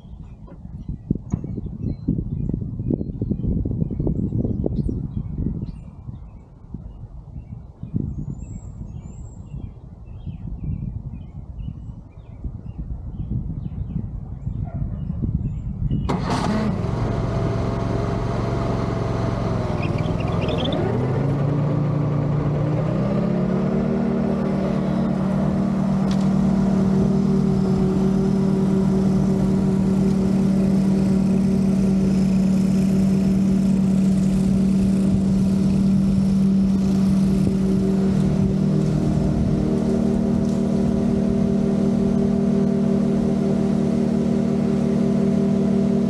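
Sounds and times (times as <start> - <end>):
riding mower engine running: 16.0 - 46.0.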